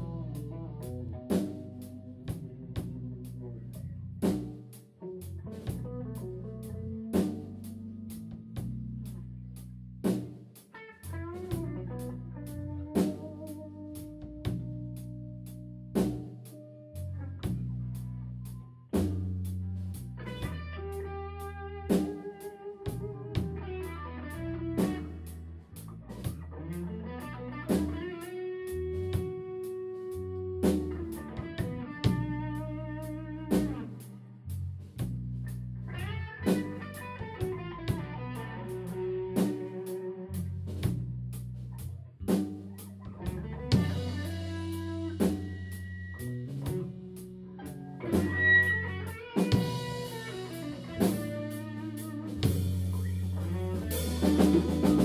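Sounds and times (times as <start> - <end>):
electric guitar solo: 0.0 - 3.7, 20.2 - 25.3, 26.4 - 34.3, 35.8 - 40.6, 43.0 - 55.0
bass: 0.0 - 55.0
drums keeping a beat: 0.0 - 55.0.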